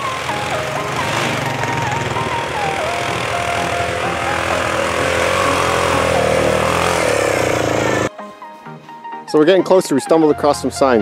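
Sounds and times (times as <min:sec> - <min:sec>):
atv engine running: 0:00.0 - 0:08.1
background music: 0:00.0 - 0:11.0.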